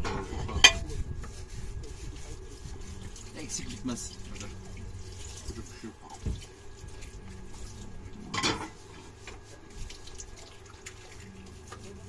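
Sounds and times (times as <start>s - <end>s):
dishes clattering: 0.0s - 0.9s, 8.2s - 8.8s
water running from tap: 2.2s - 12.0s.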